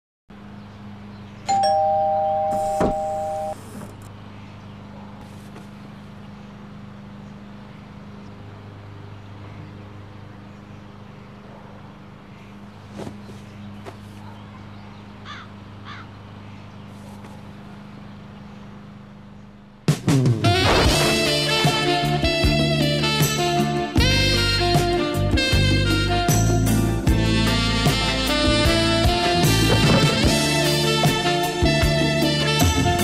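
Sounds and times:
doorbell two-note chime: 1.5s - 3.6s.

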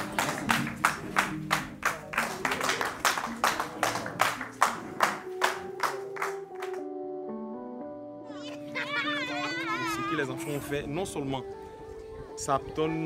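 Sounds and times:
rhythmic hand clapping: 0.0s - 6.9s
music with held tones: 4.2s - 13.0s.

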